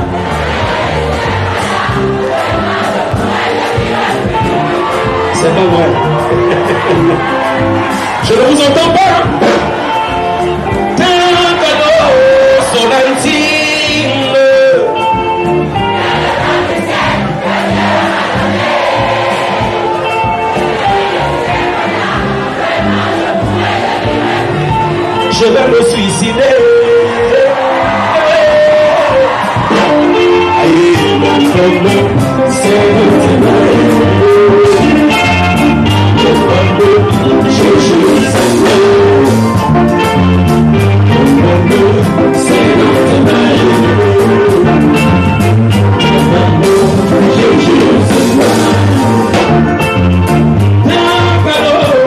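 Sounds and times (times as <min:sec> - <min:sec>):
band playing dance music: 0:00.0 - 0:52.0
man singing: 0:08.2 - 0:09.4, 0:10.7 - 0:15.1, 0:25.2 - 0:39.6, 0:41.1 - 0:49.6, 0:50.8 - 0:52.0.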